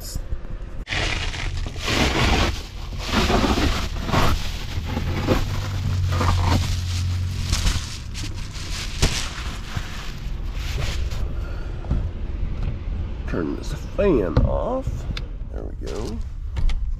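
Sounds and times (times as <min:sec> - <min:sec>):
foil insulation crinkling: 0:00.9 - 0:11.2.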